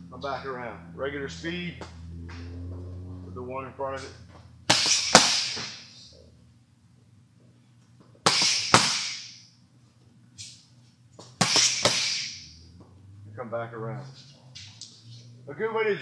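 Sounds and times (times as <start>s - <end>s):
boxing gloves smacking mitts: 4.7s - 5.8s, 8.2s - 9.4s, 11.2s - 12.4s.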